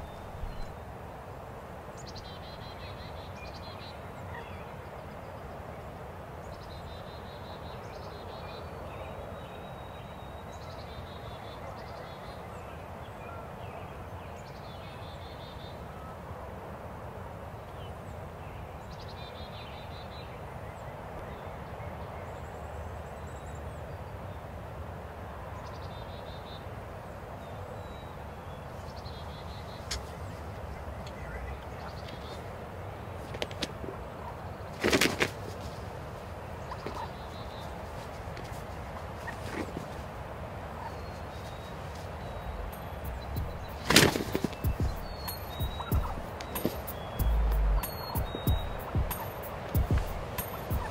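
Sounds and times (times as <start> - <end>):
outdoor background hiss: 0.0 - 50.9
small birds singing trills: 27.4 - 32.7, 40.8 - 50.9.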